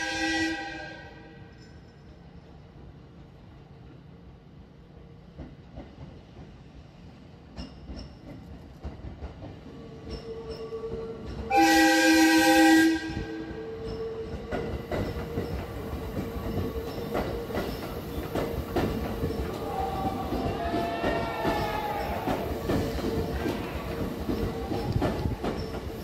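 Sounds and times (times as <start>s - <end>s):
train horn: 0.0s - 1.6s, 11.5s - 14.0s, 19.6s - 22.6s
wheels clicking over rail joints: 7.5s - 11.5s, 13.6s - 26.0s
train motor whine: 14.7s - 26.0s.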